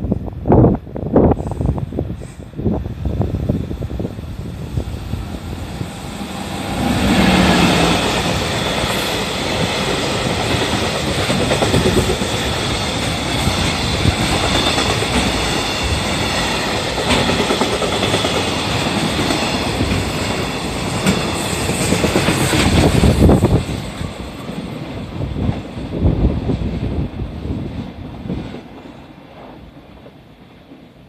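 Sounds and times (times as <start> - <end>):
electric locomotive hum: 0.1 - 31.0
train wheels clattering on rails: 5.8 - 27.0.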